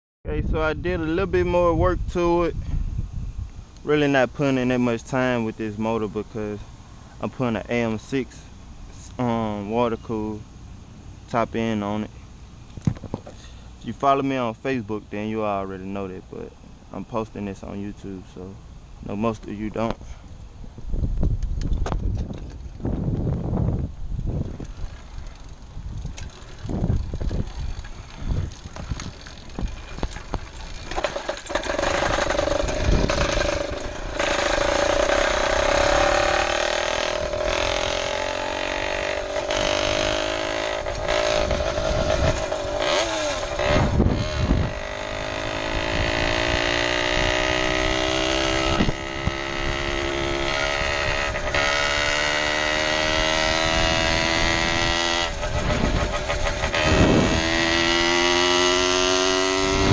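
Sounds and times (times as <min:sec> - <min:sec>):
small two-stroke engine running: 0:24.6 - 0:59.9.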